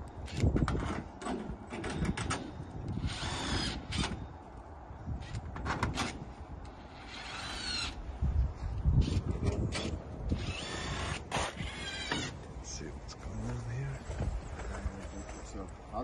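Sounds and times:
cordless drill whining: 10.3s - 12.4s.

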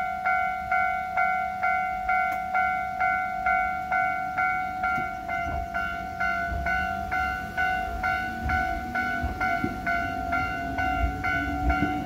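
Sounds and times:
electric train rumble: 0.0s - 12.0s
level crossing bell ringing: 0.0s - 12.0s.

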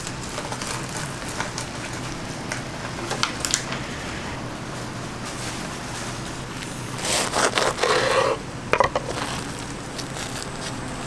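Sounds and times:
fried crust crackling and crunching: 0.0s - 3.7s, 8.9s - 11.0s.

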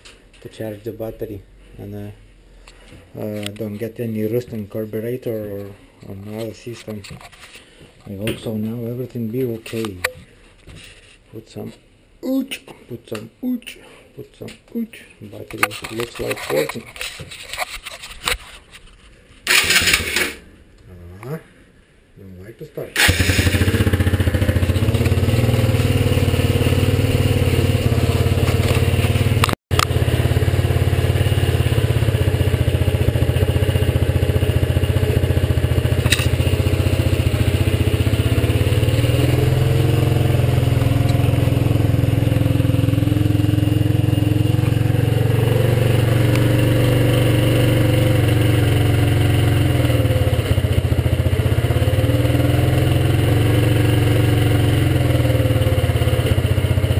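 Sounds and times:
motorcycle engine idling: 23.0s - 56.9s.

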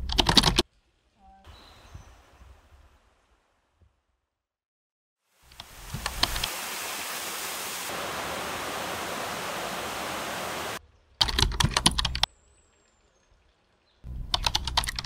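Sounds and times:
waterfall rushing: 5.4s - 10.8s.

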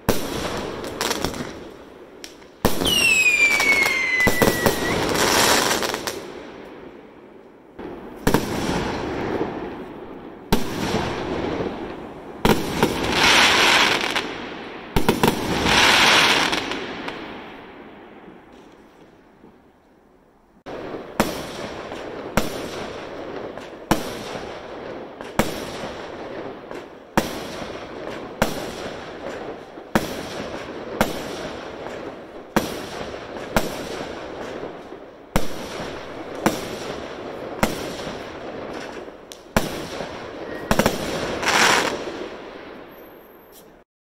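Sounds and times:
firework hissing crackle: 0.0s - 6.5s, 7.9s - 17.2s, 25.2s - 43.8s
firework bangs: 0.0s - 19.6s, 20.7s - 43.8s.

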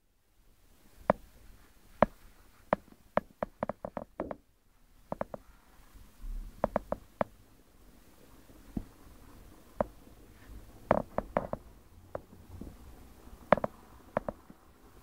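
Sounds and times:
sharp knocks and clicks: 2.0s - 4.4s, 5.1s - 5.4s, 6.6s - 7.4s, 9.8s - 10.0s, 10.9s - 12.7s, 13.5s - 14.6s.

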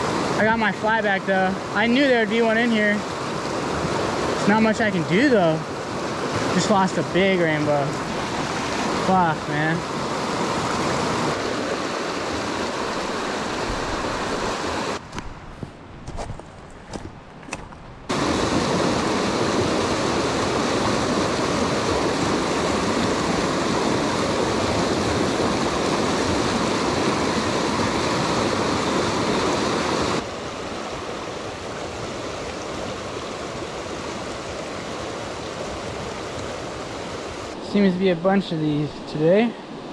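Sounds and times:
stream rushing over rocks: 0.0s - 39.9s
footsteps on dry ground: 15.0s - 18.1s.

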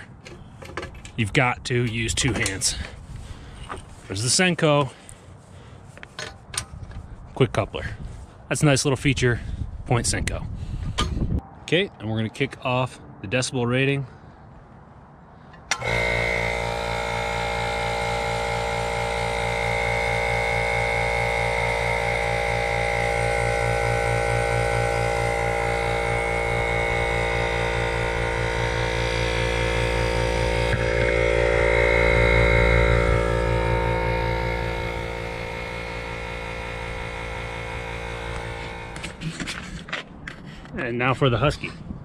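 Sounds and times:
air compressor switch click: 15.6s - 16.0s
air compressor motor hum: 15.7s - 39.9s.

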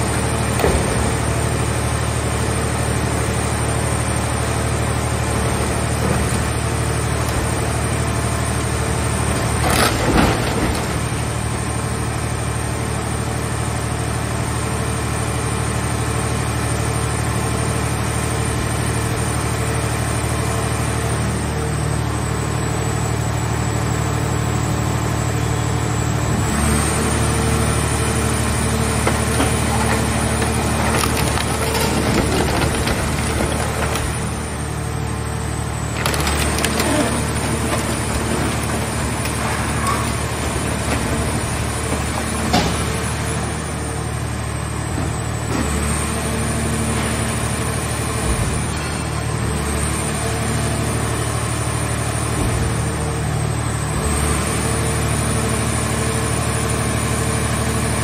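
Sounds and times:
hydraulic power unit running: 0.0s - 58.0s.

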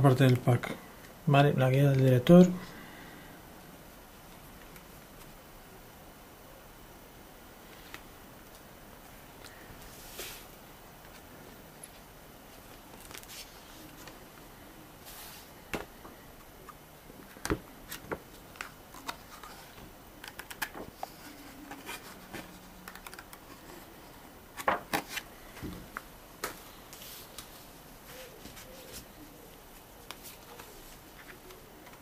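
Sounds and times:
paper rustling: 12.6s - 14.2s, 26.4s - 32.0s.

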